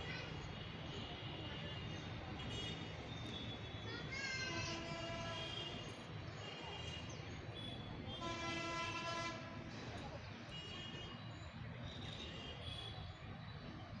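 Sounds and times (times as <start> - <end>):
low traffic rumble: 0.0 - 14.0
vehicle horns honking: 4.7 - 5.8, 7.6 - 9.6.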